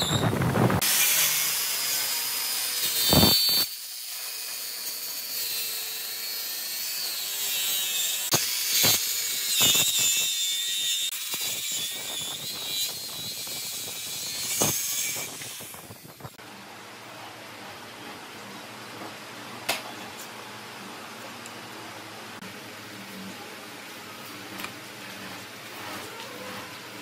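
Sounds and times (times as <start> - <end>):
circular saw cutting wood: 0.0 - 16.4.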